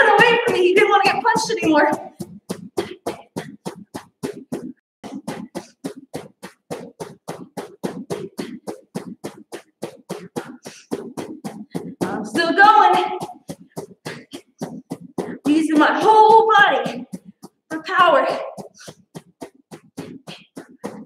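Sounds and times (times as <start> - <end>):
puffs of breath: 10.4 - 11.0.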